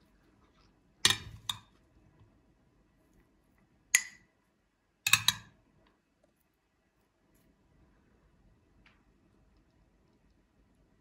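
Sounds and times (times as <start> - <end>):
utensil clinking on ceramic bowl: 1.1 - 1.7, 5.1 - 5.5.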